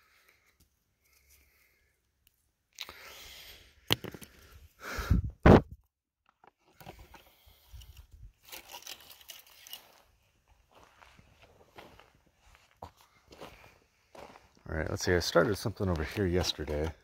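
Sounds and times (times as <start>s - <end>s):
loud thumps: 5.4s - 5.8s
footsteps crunching on gravel: 9.7s - 17.0s.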